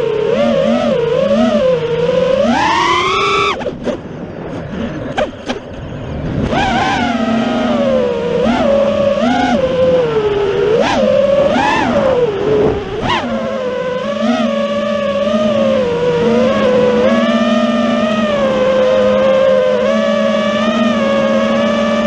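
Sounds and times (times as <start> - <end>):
drone motors whining: 0.0 - 22.0.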